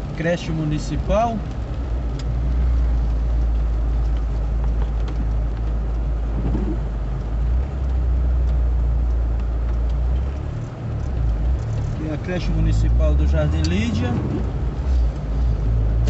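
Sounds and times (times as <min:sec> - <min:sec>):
car engine and road noise: 0:00.0 - 0:16.0.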